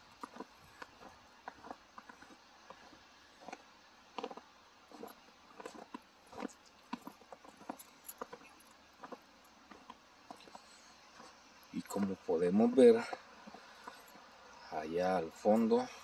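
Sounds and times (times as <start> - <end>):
footsteps crunching in snow: 0.0 - 15.9.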